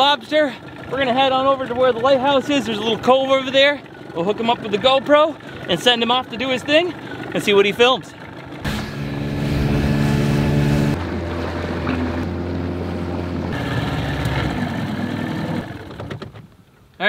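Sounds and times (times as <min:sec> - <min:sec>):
water noise: 0:00.0 - 0:16.2
outboard motor running: 0:00.0 - 0:16.5
wind: 0:00.0 - 0:17.0.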